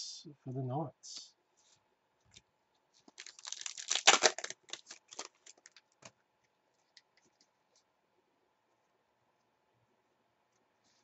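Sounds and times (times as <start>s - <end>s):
wrapper crinkling and tearing: 3.0s - 6.1s.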